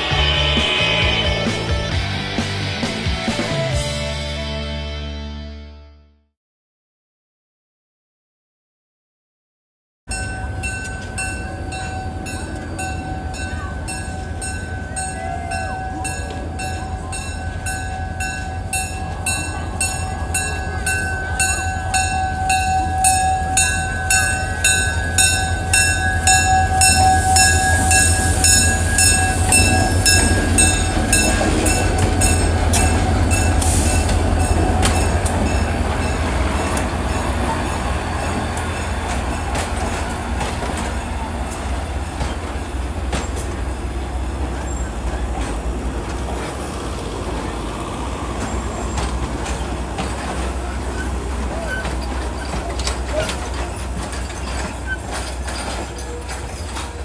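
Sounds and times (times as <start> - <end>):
faint high squeal: 0.0 - 2.0, 21.2 - 31.9
diesel locomotive engine rumble: 0.0 - 5.1, 10.1 - 57.0.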